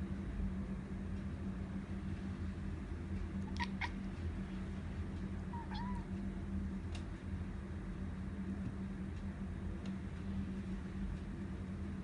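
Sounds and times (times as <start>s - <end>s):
steady low hum: 0.0s - 12.0s
cat chirping: 3.5s - 4.0s, 5.5s - 6.1s.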